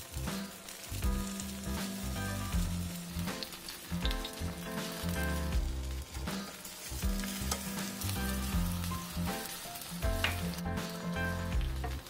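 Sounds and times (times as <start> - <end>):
background music with bass line: 0.0 - 12.0
oil sizzling and crackling: 0.0 - 12.0.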